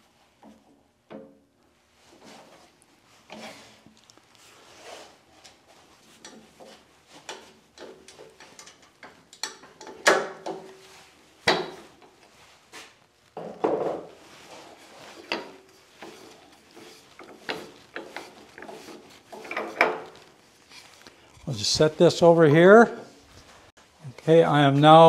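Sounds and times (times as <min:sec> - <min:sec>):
clicks and knocks of lathe fittings: 0:06.2 - 0:10.8, 0:15.2 - 0:20.3.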